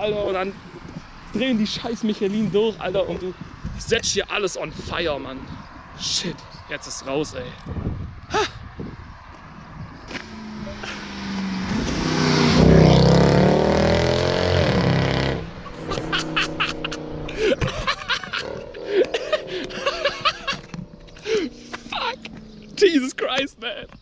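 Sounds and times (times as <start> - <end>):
car engine accelerating: 9.0 - 23.0.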